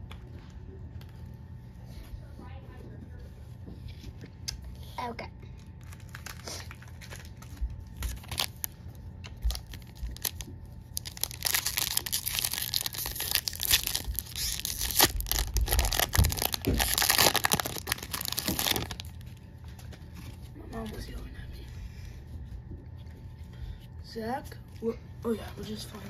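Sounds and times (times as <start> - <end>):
foil wrapper crinkling and tearing: 5.6 - 19.4.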